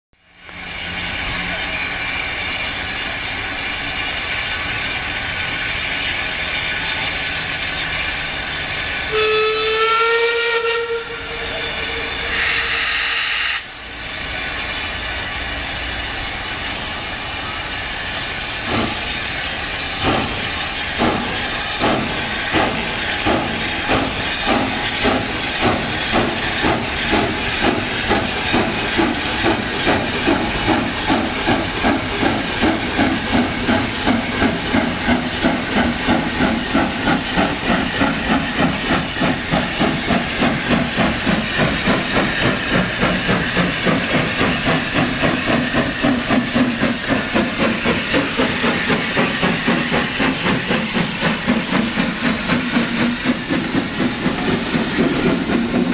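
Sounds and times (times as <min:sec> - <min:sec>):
steam locomotive exhaust beats: 0:00.2 - 0:55.9
steam hissing: 0:00.3 - 0:55.9
steam whistle blast: 0:09.1 - 0:13.7.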